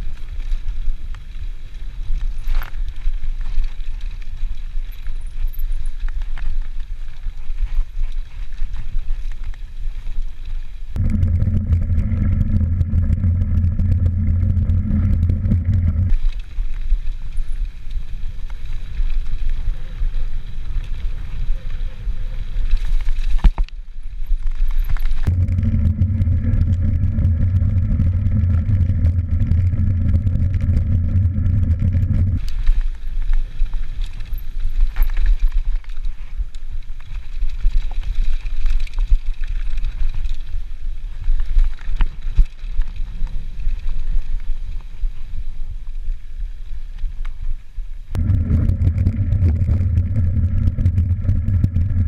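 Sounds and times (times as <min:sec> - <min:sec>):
bike rattling over bumps: 0:00.0 - 0:45.4, 0:48.1 - 0:52.0
wind buffeting microphone: 0:11.0 - 0:16.4, 0:25.2 - 0:32.4, 0:48.1 - 0:52.0.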